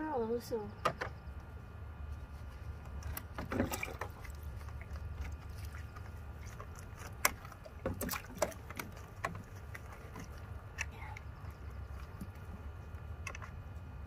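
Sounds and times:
steady low rumble: 0.0s - 14.0s
water splashing in a pool: 3.0s - 12.8s.

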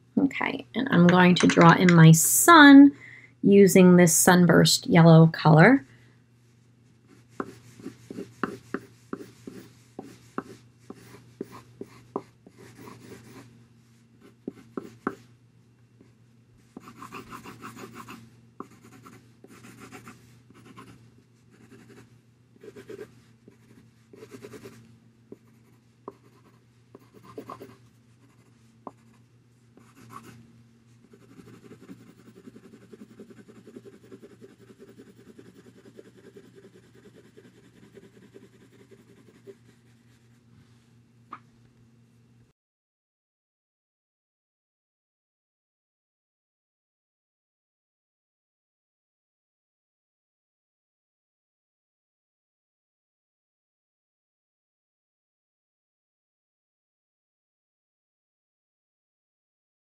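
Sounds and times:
coloured pencil strokes on paper: 7.1s - 15.2s, 16.6s - 30.4s, 31.0s - 40.4s.

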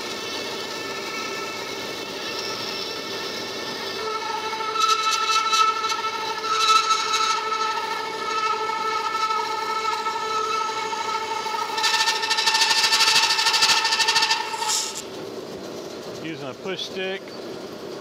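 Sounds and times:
band saw whining: 0.0s - 18.0s
saw blade cutting wood hiss: 0.6s - 15.1s.

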